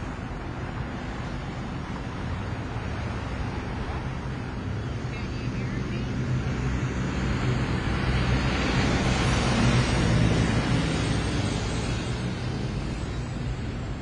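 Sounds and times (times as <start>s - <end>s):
steady rushing noise: 0.0s - 14.0s.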